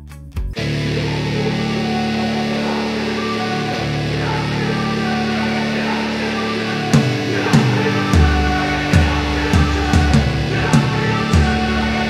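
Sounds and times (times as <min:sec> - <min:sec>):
heavy bass: 0:00.0 - 0:12.0
rock guitar: 0:00.0 - 0:12.0
steady drum beat: 0:07.0 - 0:12.0.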